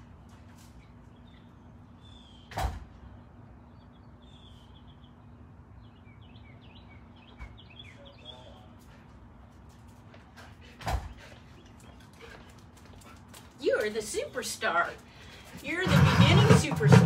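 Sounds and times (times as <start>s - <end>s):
door thumping shut: 2.5s - 2.9s.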